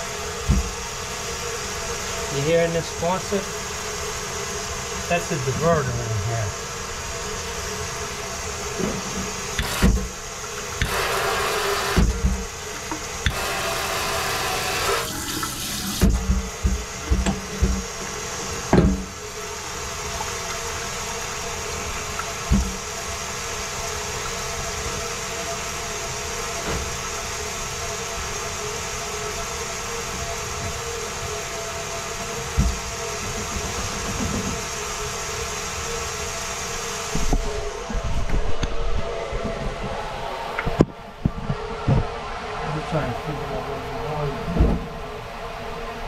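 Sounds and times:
faucet water running into sink: 9.3 - 18.2.

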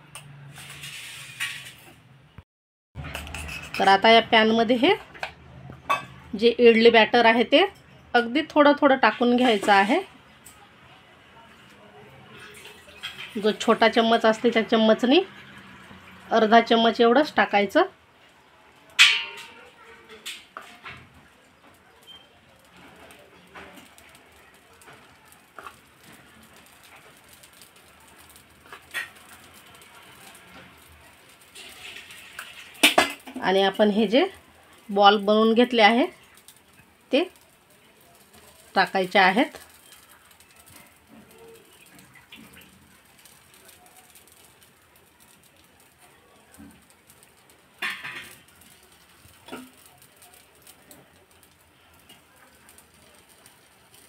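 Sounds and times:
metal spoon tapping a pan: 3.0 - 4.1, 18.9 - 21.1, 24.9 - 29.7, 30.3 - 33.6, 47.8 - 50.8
kitchen handling noises: 18.9 - 21.8, 47.8 - 48.5.

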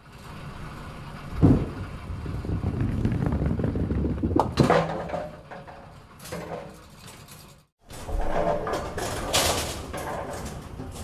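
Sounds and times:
bowling ball rolling rumble: 1.3 - 6.6.

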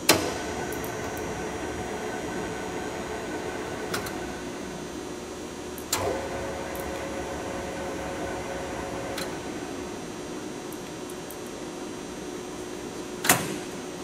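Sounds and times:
lathe humming and whining: 0.0 - 10.8.

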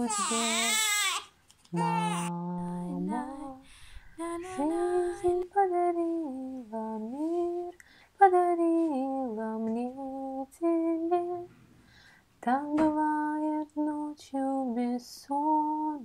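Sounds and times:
woman singing lullaby: 0.0 - 11.5, 12.4 - 16.0.

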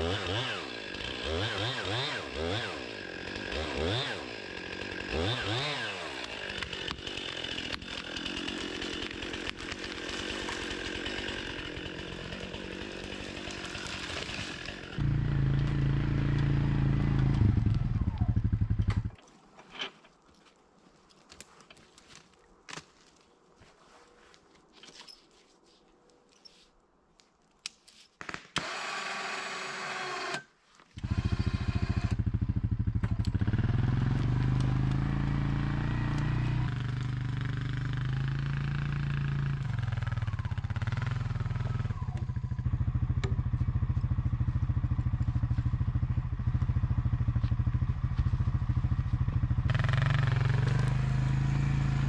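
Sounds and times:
atv engine running: 15.0 - 19.2, 31.1 - 52.0.

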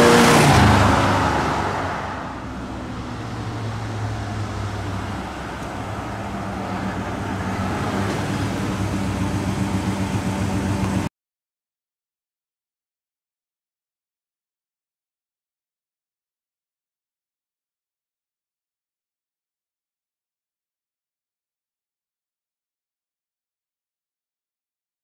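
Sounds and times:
car engine running: 0.0 - 11.1.

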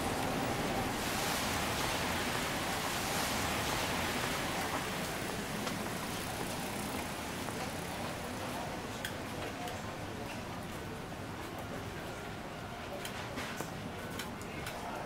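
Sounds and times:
steady rain: 0.0 - 9.8.

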